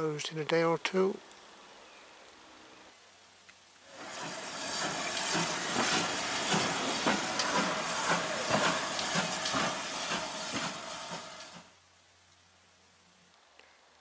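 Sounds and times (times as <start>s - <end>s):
steam locomotive hissing: 3.9s - 11.8s
metal clanks and knocks: 4.2s - 11.6s.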